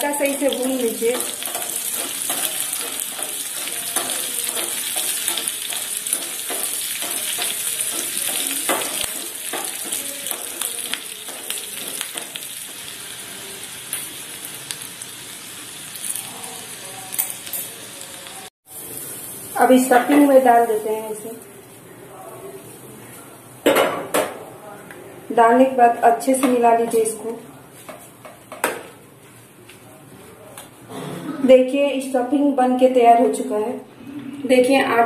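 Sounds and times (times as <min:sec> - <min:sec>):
chillies sizzling in hot oil: 0:00.0 - 0:21.8
metal spoon scraping pan: 0:01.1 - 0:12.4.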